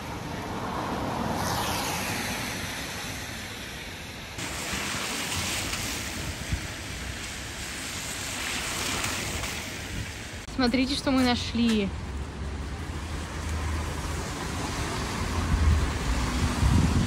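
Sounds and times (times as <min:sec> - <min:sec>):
strong wind rushing: 0:14.5 - 0:17.0.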